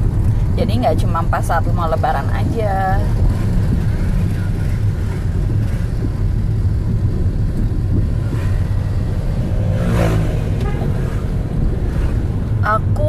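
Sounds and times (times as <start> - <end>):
car road noise rumble: 0.0 - 13.0
passing traffic engine: 0.0 - 13.0.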